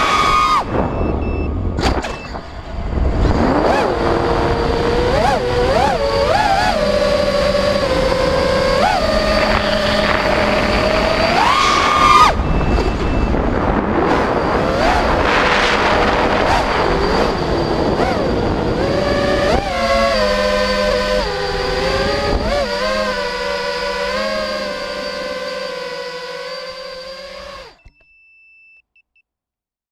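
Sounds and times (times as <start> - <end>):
quadcopter motors whining: 0.0 - 28.0
rush of air noise: 8.0 - 22.6.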